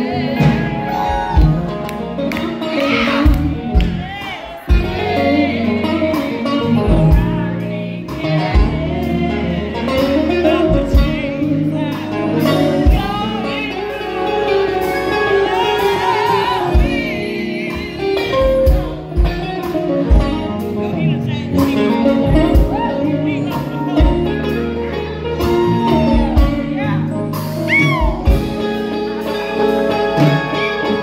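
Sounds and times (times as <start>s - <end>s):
lead guitar bending notes: 0.0s - 4.0s
live band playing: 0.0s - 31.0s.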